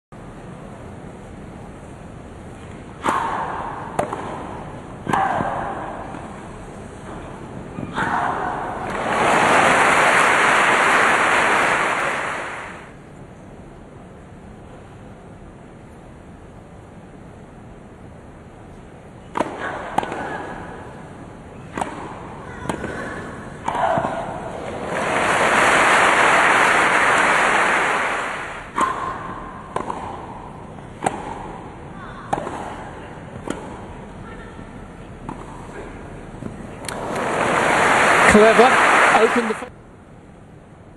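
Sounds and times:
tennis racket striking ball: 0:03.0 - 0:06.3, 0:21.7 - 0:24.6, 0:28.6 - 0:31.7, 0:32.3 - 0:33.9
crowd applauding and cheering: 0:09.0 - 0:12.8, 0:24.7 - 0:28.7, 0:36.9 - 0:39.7.

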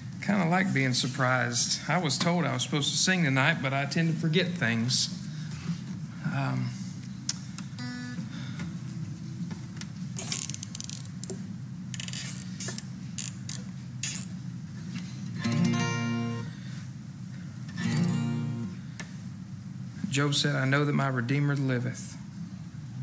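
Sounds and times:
acoustic guitar playing: 0:07.8 - 0:08.2, 0:15.4 - 0:16.7, 0:17.7 - 0:18.9.

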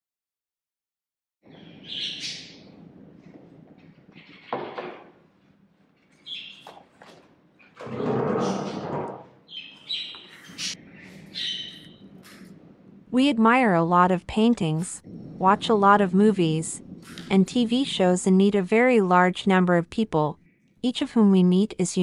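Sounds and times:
bird chirping: 0:01.5 - 0:02.8, 0:06.1 - 0:06.8, 0:09.4 - 0:12.5
low steady hum: 0:10.5 - 0:22.0.

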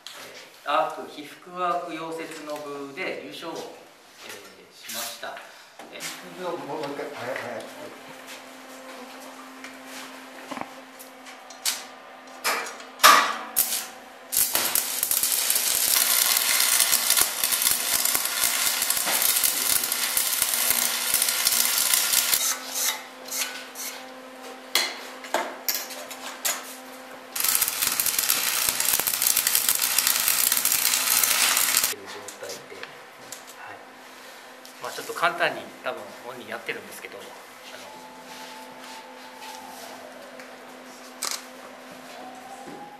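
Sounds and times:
arc welding crackling hiss: 0:13.6 - 0:23.0, 0:27.4 - 0:32.0.

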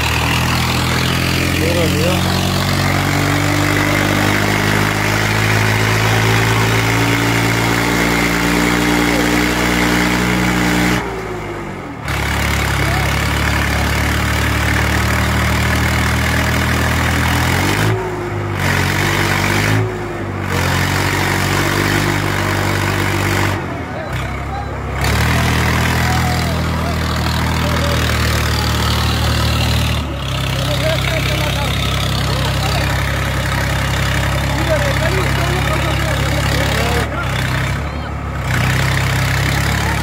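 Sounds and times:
tractor diesel engine under load: 0:00.0 - 0:40.0.

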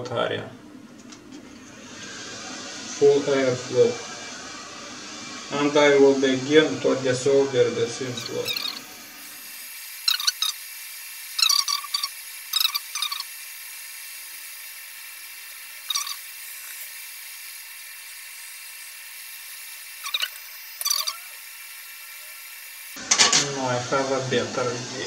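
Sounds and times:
hot-air gun hissing: 0:01.8 - 0:25.0
short high-pitched bursts: 0:08.2 - 0:23.0.

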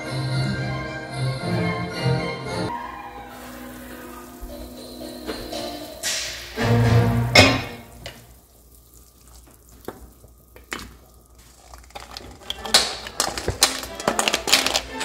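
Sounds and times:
broth simmering and bubbling: 0:03.2 - 0:15.0
shells clattering into a pot: 0:11.6 - 0:15.0.

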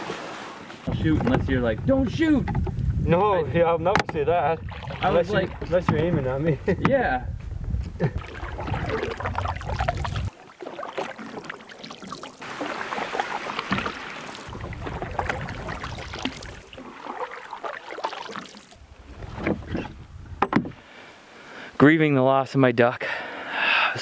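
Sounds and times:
wind rumble on microphone: 0:00.9 - 0:10.3, 0:14.5 - 0:16.6, 0:18.8 - 0:20.8
paddle splashing and dripping: 0:04.6 - 0:06.0, 0:08.2 - 0:20.0.

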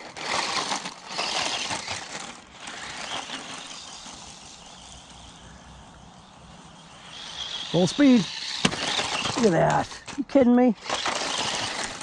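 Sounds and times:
toy truck tyres crunching: 0:00.0 - 0:12.0
chassis rattling: 0:06.6 - 0:10.2.

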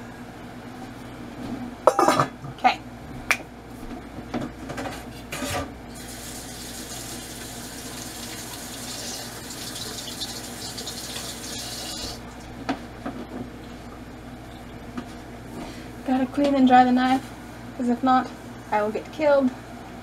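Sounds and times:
kitchen tap running: 0:05.9 - 0:12.6.

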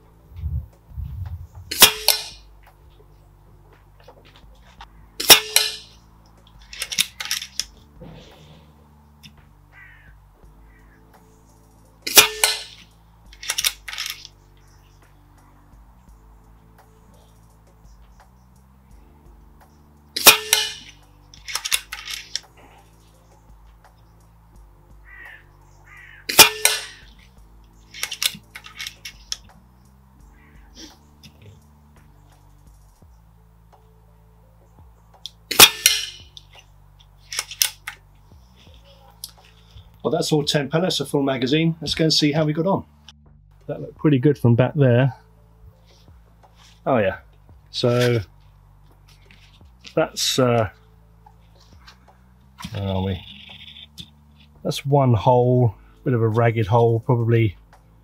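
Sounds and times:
air rifle shot: 0:01.7 - 0:02.4, 0:12.1 - 0:12.8, 0:26.3 - 0:27.1, 0:35.5 - 0:36.3
air rifle shot crack: 0:01.7 - 0:02.4
metallic clicks of rifle action: 0:04.7 - 0:07.8, 0:12.0 - 0:14.4, 0:20.2 - 0:22.5, 0:27.9 - 0:29.6, 0:35.2 - 0:38.0.

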